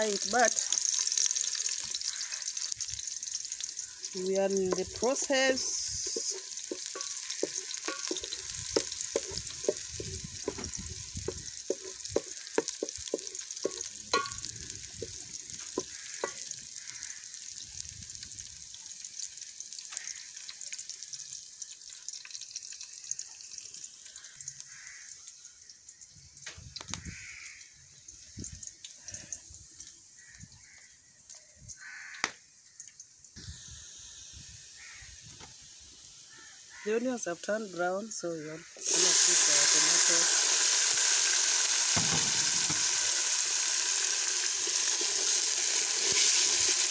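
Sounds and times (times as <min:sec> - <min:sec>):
onions sizzling in hot oil: 0:00.0 - 0:46.9
wooden spoon knocking on pot: 0:06.0 - 0:15.2, 0:15.8 - 0:16.5.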